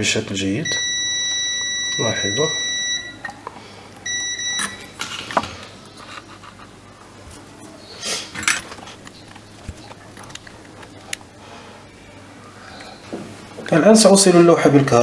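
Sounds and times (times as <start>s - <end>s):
multimeter high beep: 0.6s - 3.3s, 4.0s - 4.9s
rustling of handling tools: 4.6s - 11.4s.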